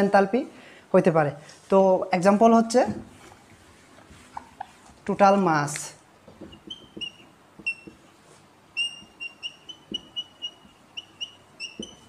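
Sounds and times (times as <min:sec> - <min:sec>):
whiteboard marker squeaking: 0:06.3 - 0:08.2, 0:08.8 - 0:12.0
marker tip tapping on board: 0:11.7 - 0:12.0.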